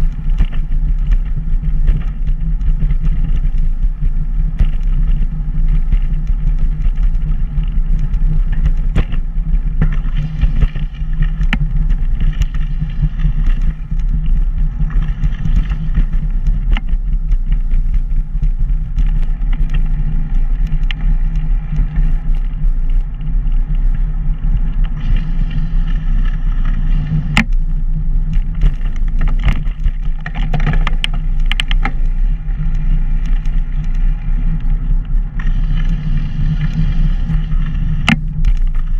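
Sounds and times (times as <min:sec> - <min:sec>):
bike clicks and rattles: 0:00.0 - 0:38.9
road vibration: 0:00.0 - 0:38.9
wind buffeting: 0:00.0 - 0:38.9.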